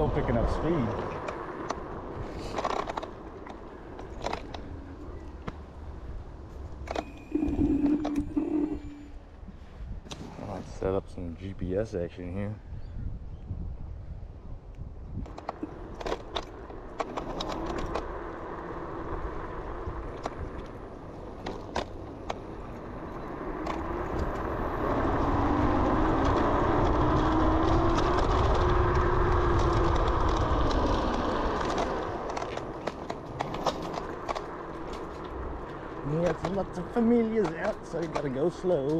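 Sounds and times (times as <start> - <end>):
wind rumbling on microphone: 0.0 - 38.9
clicks and rattles from bumps: 2.4 - 5.6, 15.2 - 18.1, 20.0 - 22.6, 26.1 - 38.9
electric scooter motor whine: 6.8 - 9.4, 15.3 - 37.2.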